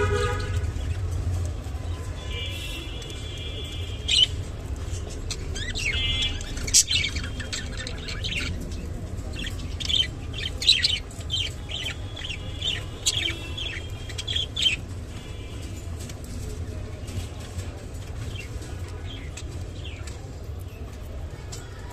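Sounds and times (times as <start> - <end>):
budgerigars chirping and warbling: 2.1 - 16.4, 17.9 - 21.0.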